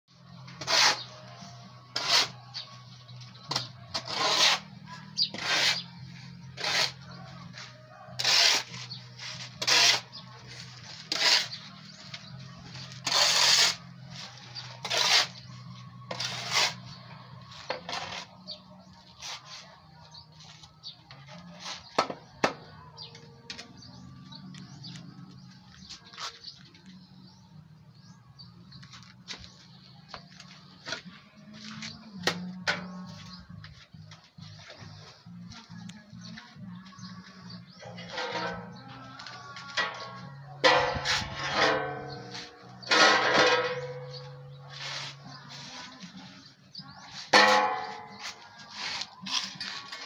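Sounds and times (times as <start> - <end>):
shovel scraping concrete floor: 0.4 - 1.2, 1.9 - 2.7, 3.5 - 17.0, 17.6 - 19.7, 37.7 - 46.2, 47.0 - 50.0.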